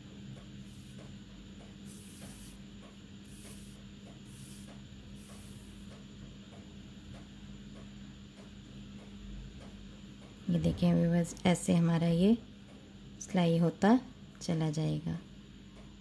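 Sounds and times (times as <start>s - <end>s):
thread swishing through yarn: 1.9s - 2.6s, 3.3s - 5.9s.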